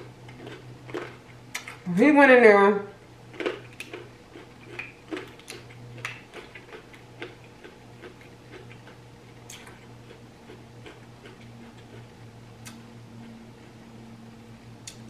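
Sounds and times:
wet chewing: 0:00.2 - 0:01.8, 0:03.3 - 0:13.8.

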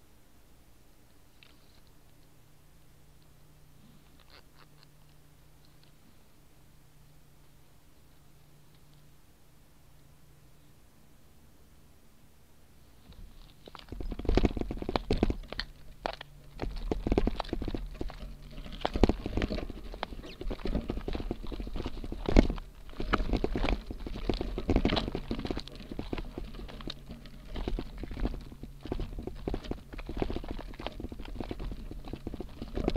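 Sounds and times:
bike frame rattling: 0:13.6 - 0:32.9
bike tyres crunching on gravel: 0:13.6 - 0:32.9.

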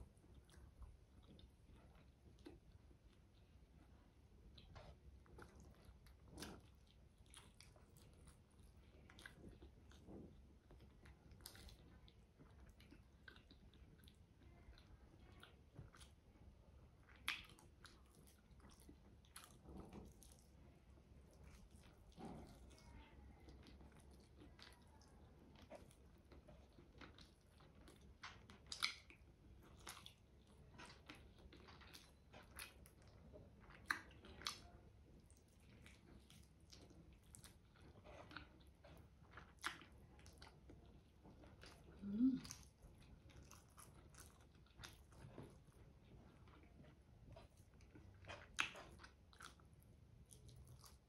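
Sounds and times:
wet chewing and biting: 0:04.4 - 0:14.3, 0:17.0 - 0:51.0
mouth clicks and smacks: 0:28.2 - 0:29.2.

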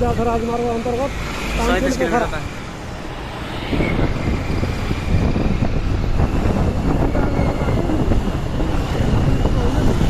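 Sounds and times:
road noise: 0:00.0 - 0:10.0
wind buffeting microphone: 0:02.8 - 0:10.0.

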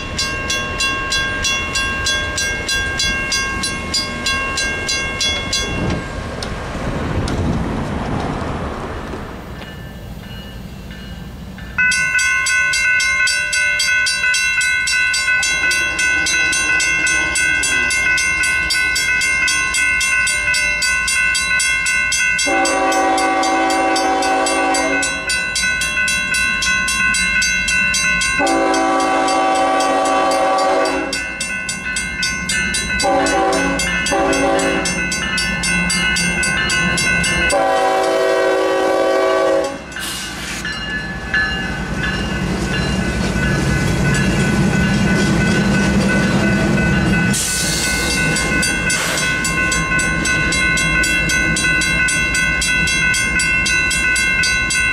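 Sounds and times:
railroad crossing bell ringing: 0:00.0 - 0:06.6, 0:09.5 - 0:54.9
train rumble: 0:00.0 - 0:54.9
locomotive horn blasts: 0:22.4 - 0:25.3, 0:28.4 - 0:31.3, 0:33.0 - 0:35.0, 0:37.5 - 0:39.9.

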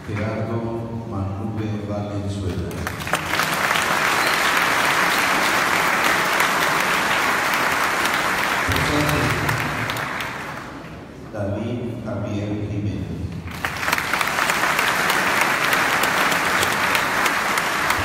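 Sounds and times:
congregation applauding: 0:02.6 - 0:11.0, 0:13.4 - 0:18.0.

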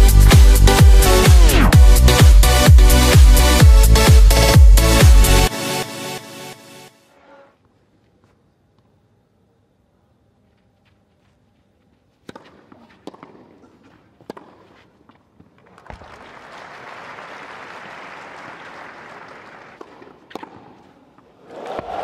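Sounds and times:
tennis racket hitting ball: 0:12.2 - 0:14.9, 0:19.8 - 0:21.0
crowd applauding: 0:15.7 - 0:19.8.

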